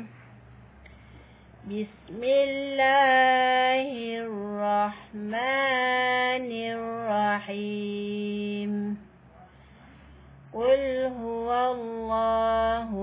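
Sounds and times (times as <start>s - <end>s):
woman chanting melodic recitation: 1.6s - 9.0s, 10.5s - 13.0s.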